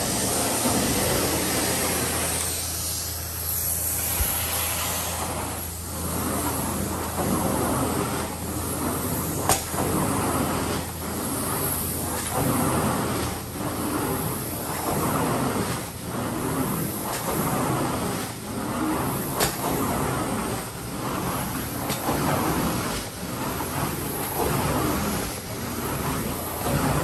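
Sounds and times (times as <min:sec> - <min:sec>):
carpet cleaning machine suction: 0:00.0 - 0:27.0
machine low hum: 0:00.0 - 0:27.0.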